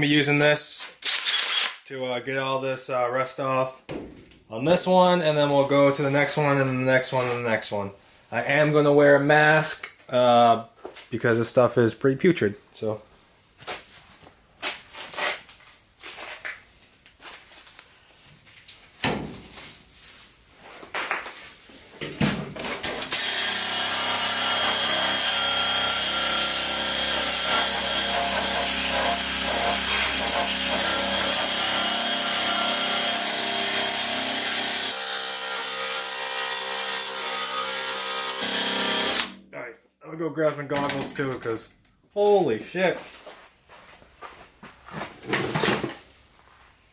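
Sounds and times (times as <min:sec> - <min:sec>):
cordless drill scouring metal: 0:01.0 - 0:01.8, 0:23.1 - 0:39.3.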